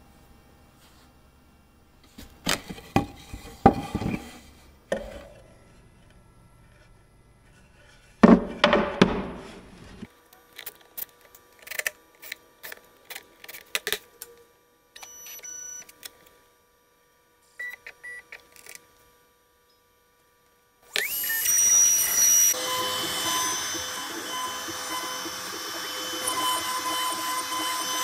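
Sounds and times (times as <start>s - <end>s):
wooden board clattering down: 8.2s - 10.0s.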